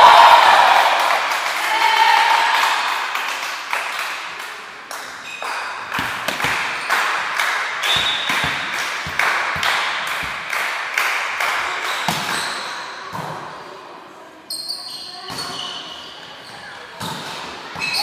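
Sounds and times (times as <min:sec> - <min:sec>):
players shouting in hall: 0:00.0 - 0:03.1
volleyball bouncing on wooden floor: 0:05.8 - 0:07.2, 0:07.8 - 0:10.7, 0:11.9 - 0:13.4.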